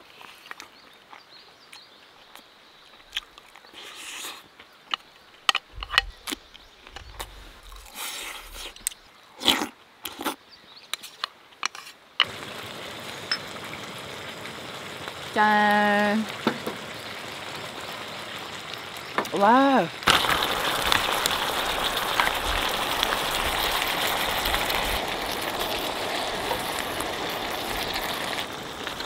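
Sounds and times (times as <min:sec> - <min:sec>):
chewing: 0:00.0 - 0:10.4
food sizzling in a pan: 0:12.2 - 0:29.0.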